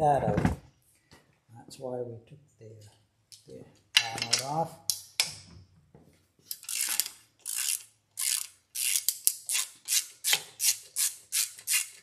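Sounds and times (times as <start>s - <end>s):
socket ratchet clicking: 6.5s - 12.0s.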